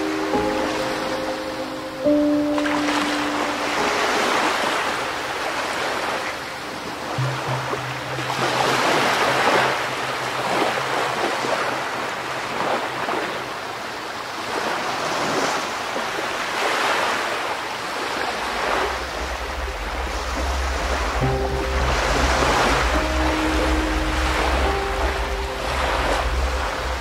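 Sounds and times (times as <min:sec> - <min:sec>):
ocean waves washing in: 0:00.0 - 0:27.0
low steady tone: 0:06.2 - 0:12.5, 0:18.3 - 0:27.0
low rumble: 0:18.4 - 0:27.0.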